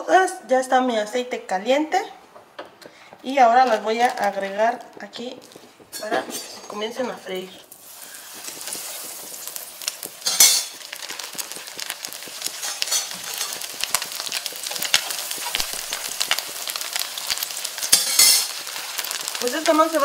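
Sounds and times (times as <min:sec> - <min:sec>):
hot oil sizzling in a frying pan: 0:04.1 - 0:20.0.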